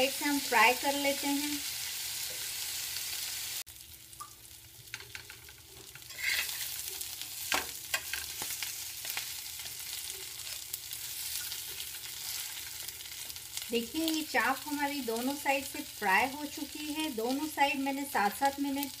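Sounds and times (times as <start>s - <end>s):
meat sizzling in a pan: 0.0s - 19.0s
spatula scraping and tapping pan: 4.9s - 6.8s, 7.5s - 10.6s.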